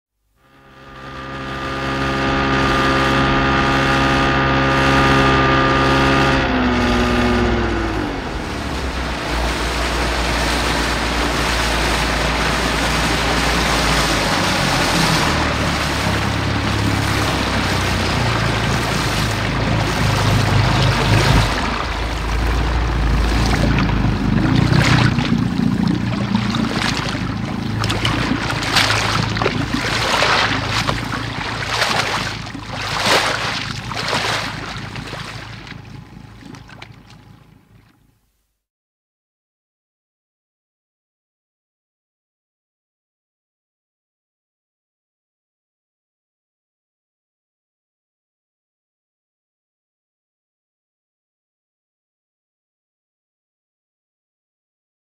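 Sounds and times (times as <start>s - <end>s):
motorboat engine: 0.2s - 38.3s
water sloshing against hull: 0.6s - 38.2s.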